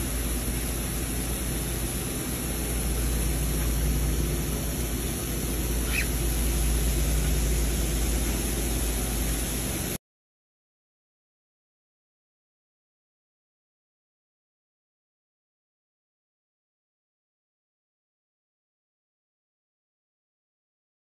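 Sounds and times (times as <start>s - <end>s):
shower water running: 0.1s - 10.0s.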